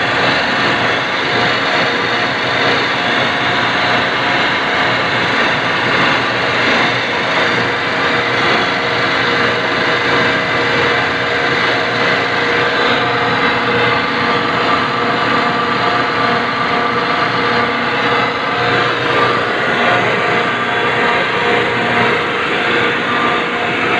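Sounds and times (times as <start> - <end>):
refrigeration compressor droning: 0.0 - 23.9.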